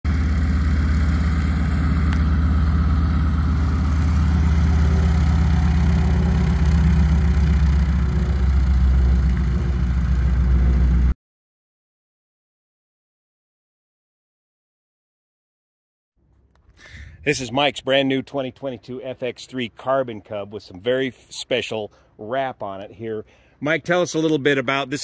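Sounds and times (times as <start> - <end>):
radial aircraft engine idling: 0.1 - 11.2.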